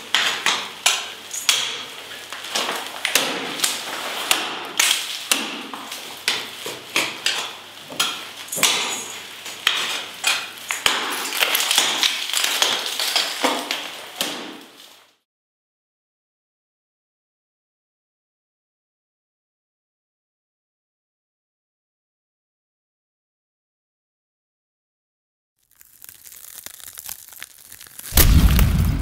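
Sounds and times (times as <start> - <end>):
ice axe striking ice: 0.0 - 14.8, 25.8 - 29.0.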